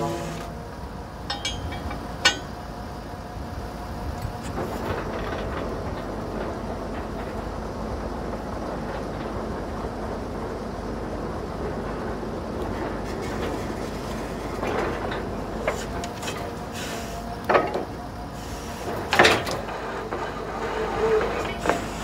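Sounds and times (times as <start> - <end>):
drilling rig engine drone: 0.0 - 22.0
drill head clanks: 1.2 - 2.6.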